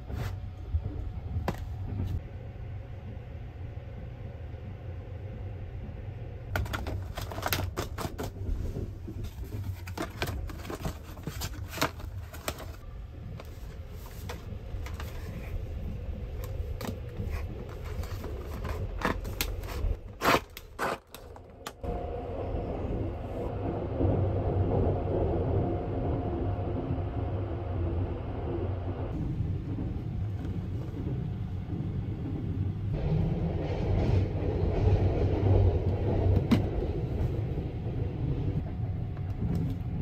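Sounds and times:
train rumble: 0.0s - 40.0s
cardboard clicks and scrapes: 16.8s - 21.5s.

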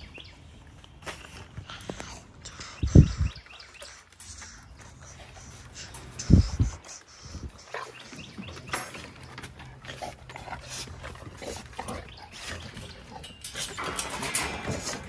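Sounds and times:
dogs chewing wetly: 6.8s - 13.3s.

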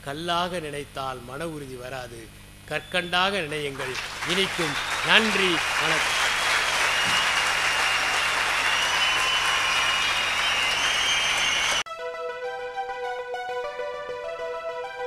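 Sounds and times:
audience applauding: 3.5s - 11.8s.

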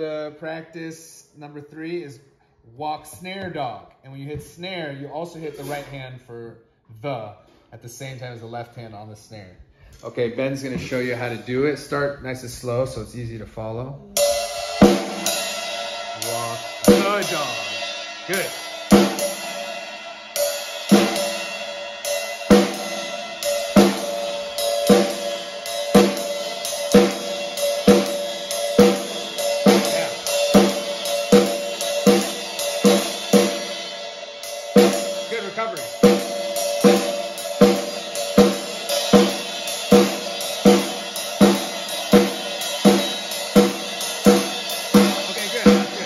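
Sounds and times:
drum kit slow beat: 3.1s - 6.0s, 10.0s - 13.2s, 14.0s - 46.0s
cymbal ringing: 14.2s - 46.0s.

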